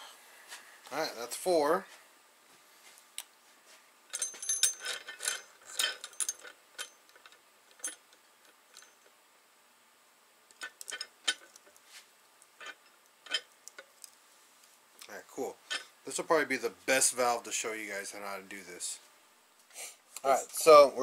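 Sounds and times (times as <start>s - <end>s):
metal tool clicking and clinking: 4.1s - 9.1s, 10.5s - 11.7s, 12.6s - 13.9s.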